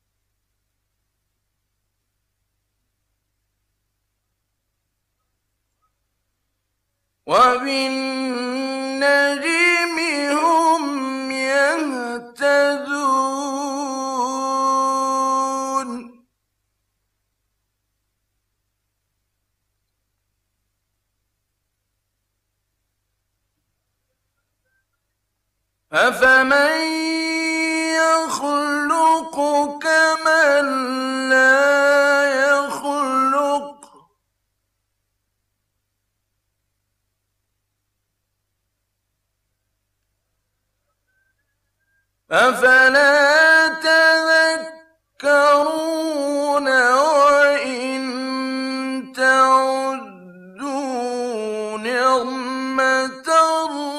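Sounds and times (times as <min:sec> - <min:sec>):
man chanting melodically: 0:07.3 - 0:16.2, 0:25.9 - 0:34.1, 0:42.3 - 0:53.9.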